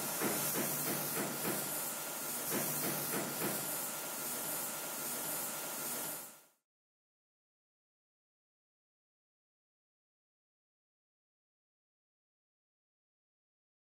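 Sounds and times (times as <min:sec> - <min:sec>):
gas torch flame hissing: 0:00.0 - 0:06.6.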